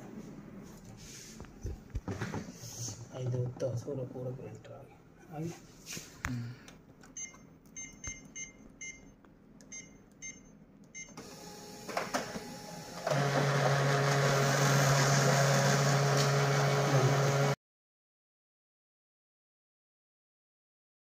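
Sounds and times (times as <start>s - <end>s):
control panel keys beeping: 7.0s - 11.2s.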